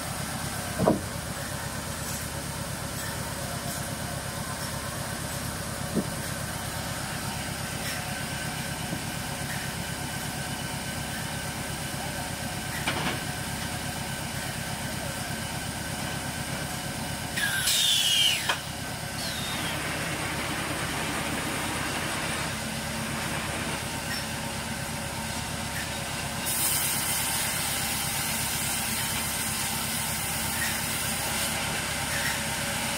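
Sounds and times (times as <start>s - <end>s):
loud squeal sliding down: 17.4s - 20.3s.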